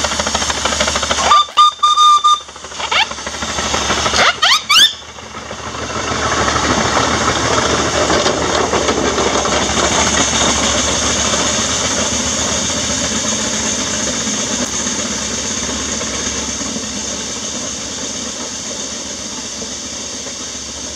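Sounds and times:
engine and wheels clattering: 0.0s - 20.9s
steam hissing: 0.0s - 20.9s.

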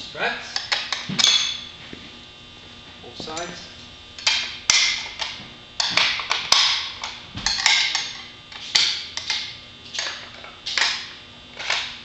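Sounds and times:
knocks and clanks on metal frame: 0.6s - 2.0s, 4.2s - 12.0s.

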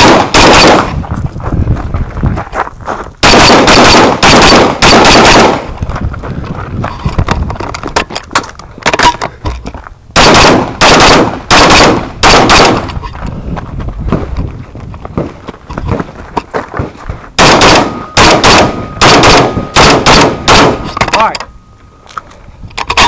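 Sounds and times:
rifle shots: 0.0s - 1.0s, 3.2s - 5.8s, 10.2s - 13.0s, 17.4s - 21.3s.

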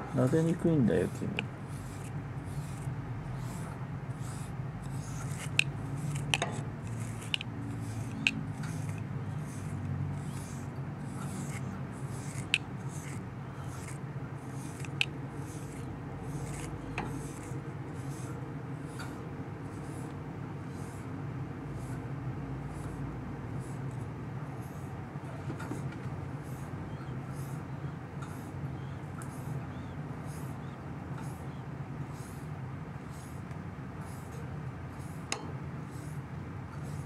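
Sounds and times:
brush swishing on fur: 0.2s - 23.9s.

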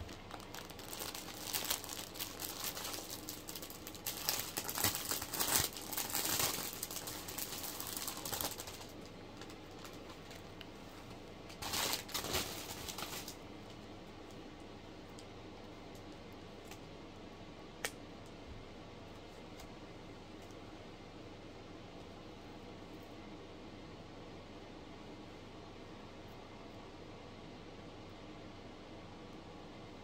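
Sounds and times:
plastic wrapping crinkling: 0.0s - 10.7s, 11.5s - 13.4s.

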